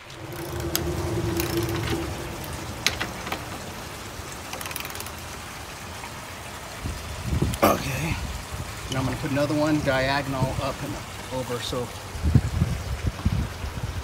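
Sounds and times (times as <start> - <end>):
low rumble: 0.0 - 4.4.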